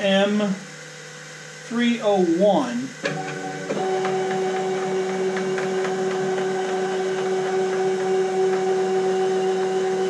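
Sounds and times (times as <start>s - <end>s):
stepper motors whining: 3.0s - 10.0s.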